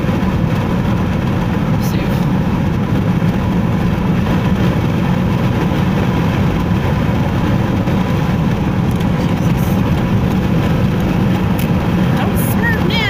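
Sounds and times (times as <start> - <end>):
car road noise at highway speed: 0.0 - 13.0.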